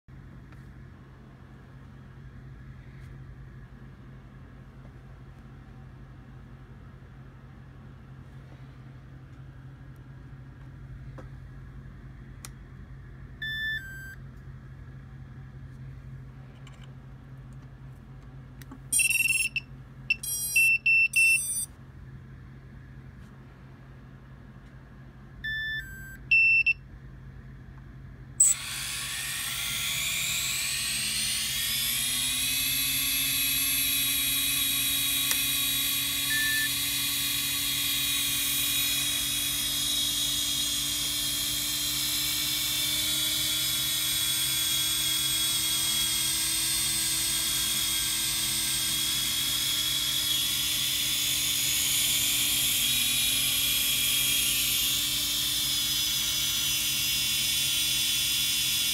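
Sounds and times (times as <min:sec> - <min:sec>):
short electronic beeps: 0:13.4 - 0:14.2, 0:18.9 - 0:21.7, 0:25.4 - 0:26.8, 0:36.2 - 0:36.8
drone motors whining: 0:28.4 - 0:58.9.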